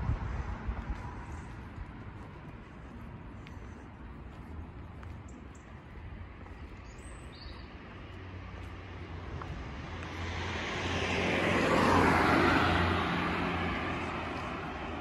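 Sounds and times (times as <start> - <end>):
car passing by: 8.0 - 15.0.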